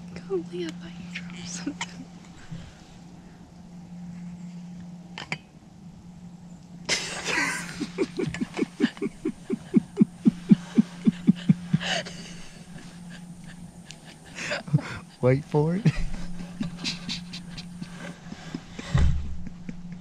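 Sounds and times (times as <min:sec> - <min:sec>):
woman laughing heartily: 0:06.9 - 0:15.2, 0:15.8 - 0:20.0.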